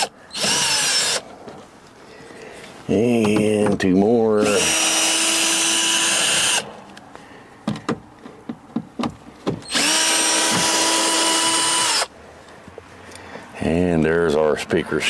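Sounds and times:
electric screwdriver running: 0:00.0 - 0:01.2, 0:04.4 - 0:06.6, 0:09.7 - 0:12.1.

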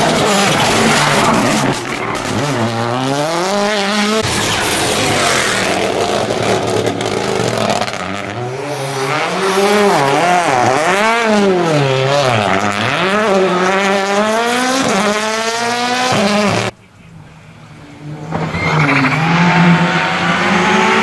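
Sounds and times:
rally car engine revving: 0:00.0 - 0:16.8, 0:17.6 - 0:21.0
rally car accelerating: 0:00.0 - 0:21.0
tyre squeal: 0:18.4 - 0:19.8.

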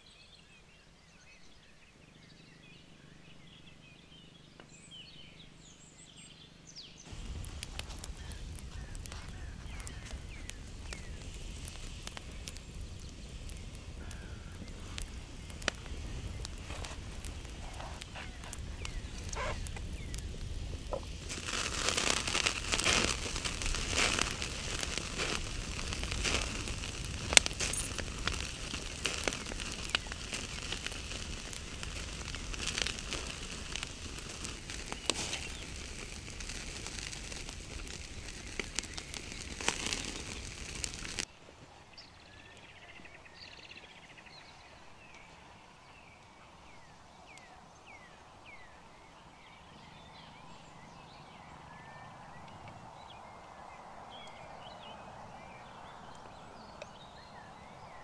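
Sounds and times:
wood fire crackling and popping: 0:07.1 - 0:41.3.

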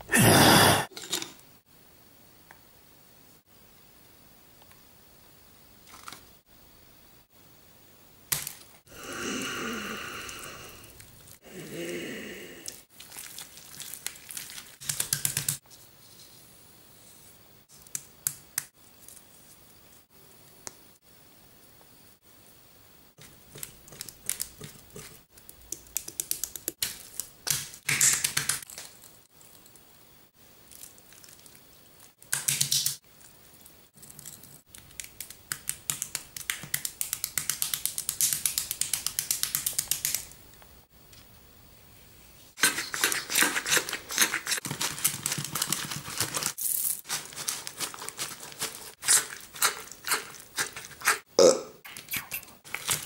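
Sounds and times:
wet rubbing and scraping: 0:42.6 - 0:51.3.

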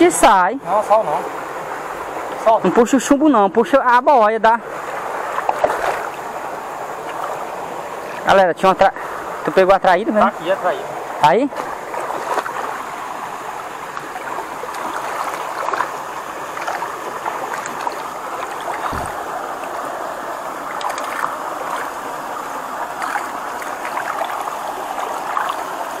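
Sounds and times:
water sloshing around net: 0:04.8 - 0:08.3, 0:11.5 - 0:26.0
small splashes: 0:05.3 - 0:06.2, 0:07.0 - 0:08.3, 0:11.5 - 0:13.0, 0:13.8 - 0:19.9, 0:20.6 - 0:26.0.

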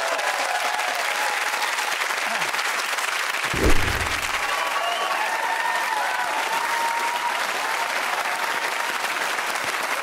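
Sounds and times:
audience applauding: 0:00.0 - 0:10.0
dull thump: 0:03.5 - 0:04.4.

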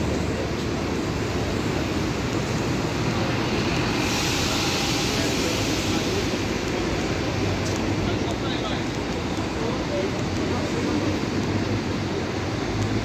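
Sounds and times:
bus engine rumble: 0:00.0 - 0:13.0
street noise: 0:00.0 - 0:13.0
hiss: 0:01.7 - 0:08.4.

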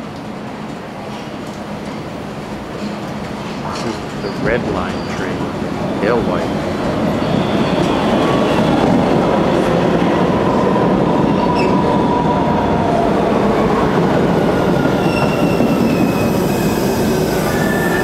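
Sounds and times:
subway train wheels rumbling: 0:00.0 - 0:18.0
high wheel squeals: 0:15.0 - 0:18.0.

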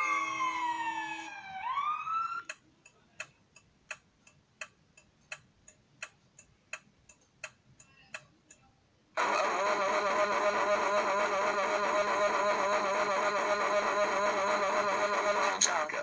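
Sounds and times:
siren-like wail: 0:00.0 - 0:02.5, 0:09.2 - 0:15.6
clock ticking: 0:02.4 - 0:08.7.

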